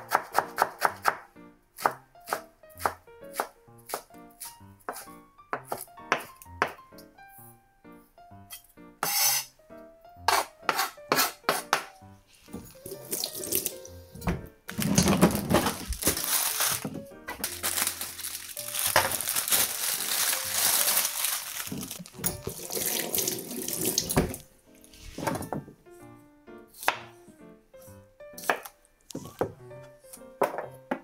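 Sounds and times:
light background music: 0.0s - 31.0s
tap water running into sink: 12.6s - 13.8s, 22.3s - 24.4s.

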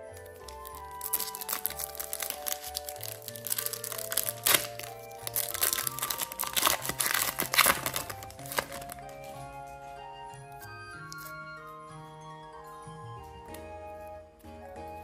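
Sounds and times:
foil wrapper crinkling: 0.0s - 9.7s
background music sustained notes: 0.0s - 15.0s.

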